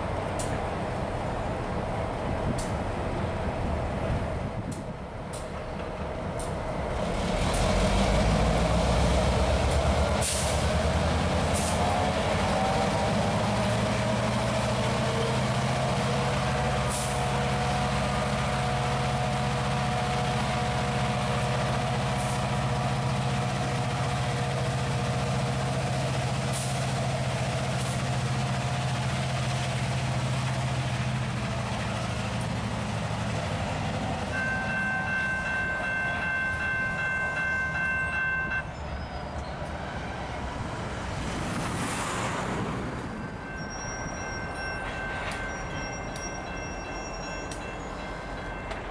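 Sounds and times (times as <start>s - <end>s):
diesel locomotive hum: 0.0s - 48.9s
ringing train warning signal: 34.3s - 38.9s, 43.1s - 48.9s.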